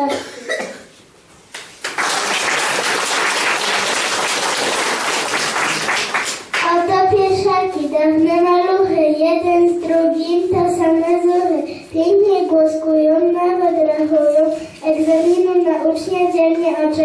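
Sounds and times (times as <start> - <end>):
audience applause: 1.7 - 6.6
child singing into microphone: 6.6 - 17.0.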